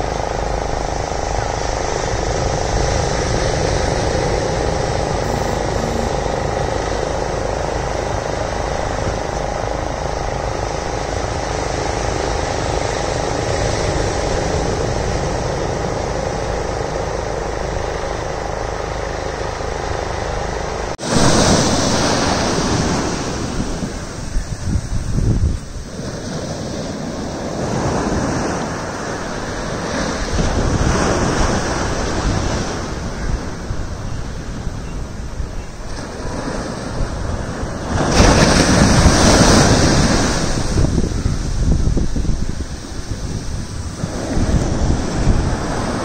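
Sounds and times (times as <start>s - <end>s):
motor drone: 0.0s - 24.7s
surf washing up the beach: 0.0s - 46.0s.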